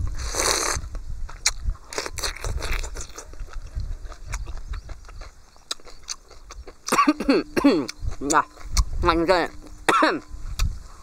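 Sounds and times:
man slurping soup: 0.1s - 0.9s
wet chewing: 0.2s - 10.8s.

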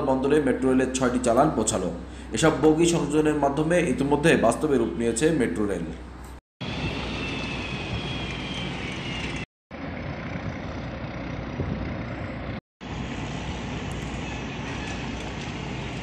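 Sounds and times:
river port ambience rumble: 6.0s - 16.0s.

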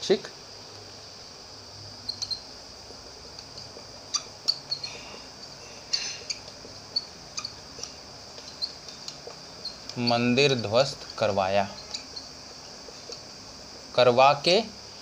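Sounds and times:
low room noise: 0.0s - 15.0s
marker squeaking on whiteboard: 2.0s - 13.4s.

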